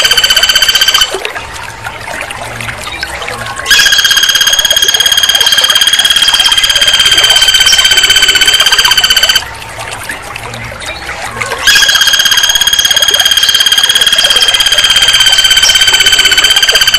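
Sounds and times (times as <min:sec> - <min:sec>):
woodpecker rattling trill: 0:03.7 - 0:09.4, 0:11.6 - 0:16.9.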